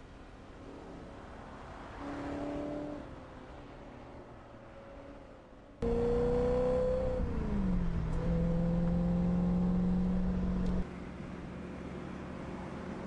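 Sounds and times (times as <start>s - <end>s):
car engine accelerating: 5.8s - 10.9s.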